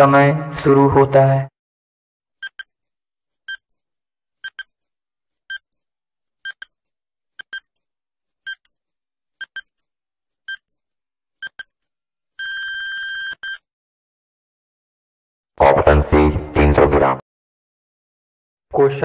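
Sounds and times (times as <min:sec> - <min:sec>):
long beep: 0:12.4 - 0:13.6
short electronic beeps: 0:12.4 - 0:13.6.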